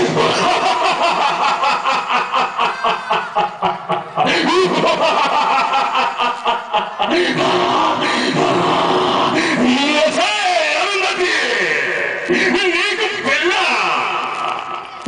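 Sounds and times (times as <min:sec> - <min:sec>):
man laughing through microphone: 0:00.0 - 0:09.8.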